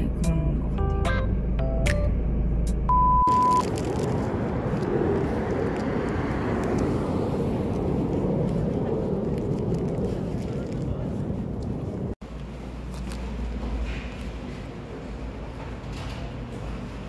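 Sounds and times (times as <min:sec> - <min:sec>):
wind: 0:00.0 - 0:17.0
distant traffic: 0:01.2 - 0:17.0
test tone beep: 0:02.9 - 0:03.7.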